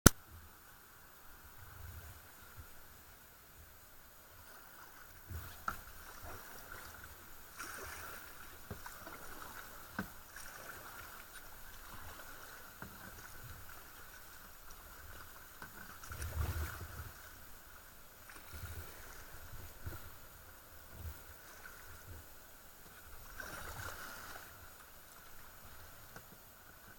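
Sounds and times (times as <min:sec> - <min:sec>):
kayak paddle splashing in water: 0:04.5 - 0:17.5, 0:22.9 - 0:24.8.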